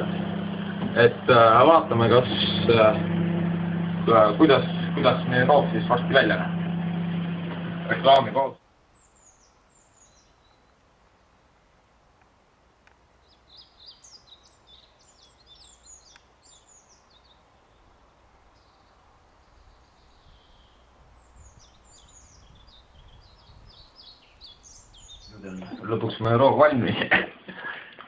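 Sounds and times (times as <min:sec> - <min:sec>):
faint low background noise: 0:08.6 - 0:27.8
songbird twittering: 0:08.9 - 0:10.7, 0:13.2 - 0:26.2.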